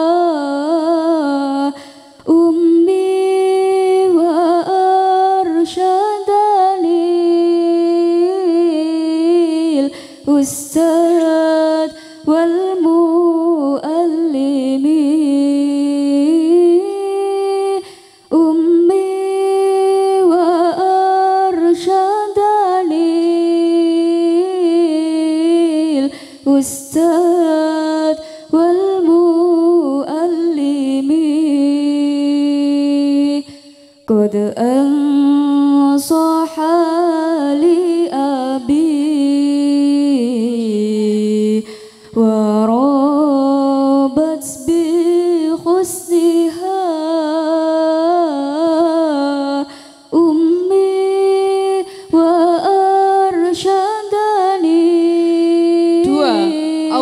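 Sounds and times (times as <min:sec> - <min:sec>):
person singing unaccompanied: 0:55.9 - 0:57.0.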